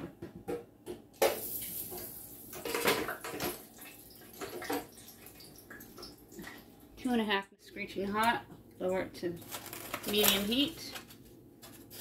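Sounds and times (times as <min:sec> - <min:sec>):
hot oil bubbling sizzle: 0:01.3 - 0:02.7.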